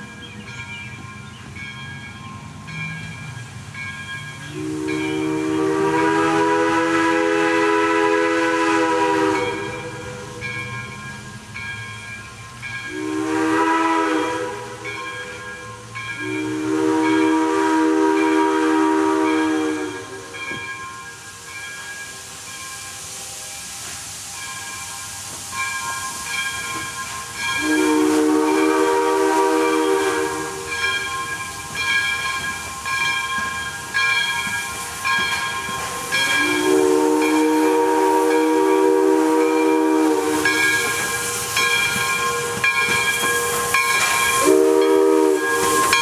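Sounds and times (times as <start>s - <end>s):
steam hissing: 0.0s - 46.0s
steam whistle chord: 4.5s - 10.6s, 12.9s - 15.1s, 16.2s - 20.7s, 27.5s - 31.0s, 36.0s - 46.0s.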